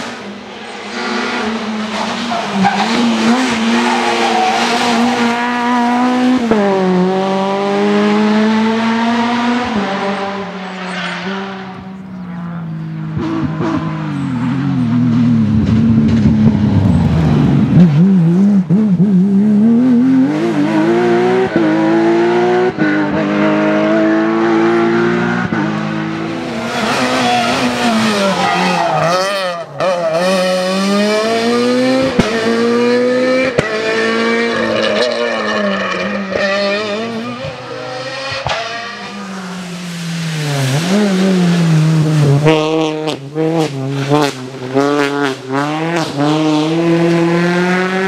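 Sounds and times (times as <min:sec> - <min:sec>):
rally car engines revving: 0:00.0 - 0:48.0
car passing close: 0:20.7 - 0:48.0.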